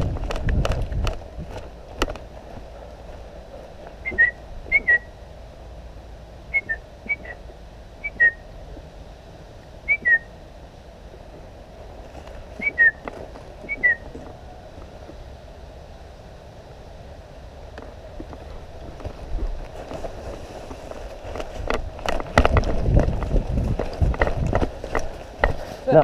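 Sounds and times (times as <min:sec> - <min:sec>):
short whistled notes: 0:04.0 - 0:05.1, 0:08.0 - 0:08.4, 0:09.9 - 0:10.3, 0:12.6 - 0:13.0, 0:13.7 - 0:14.1.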